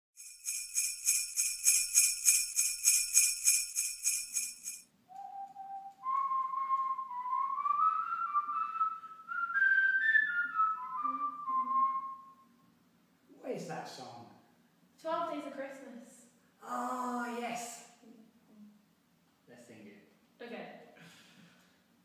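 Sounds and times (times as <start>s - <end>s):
jingle bells shaken: 0.2s - 4.9s
man whistling a tune: 5.1s - 12.5s.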